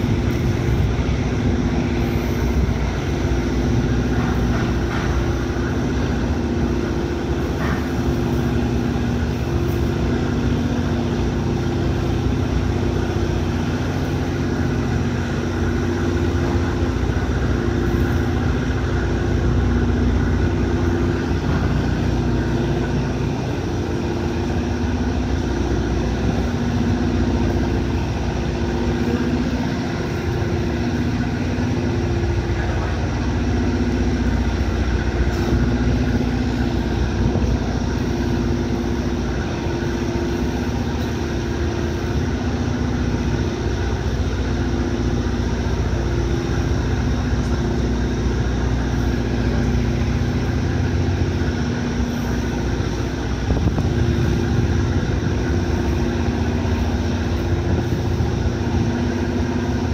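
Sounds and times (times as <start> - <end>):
ferry engines low drone: 0.0 - 59.9.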